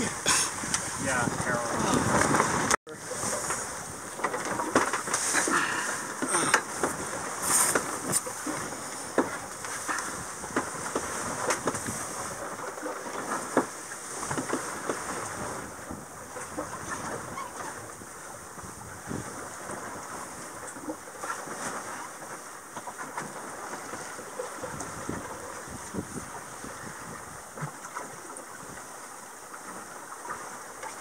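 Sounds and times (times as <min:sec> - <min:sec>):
wind noise: 0:00.0 - 0:12.4, 0:14.1 - 0:20.5, 0:24.6 - 0:27.7
water washing along hull: 0:00.0 - 0:31.0.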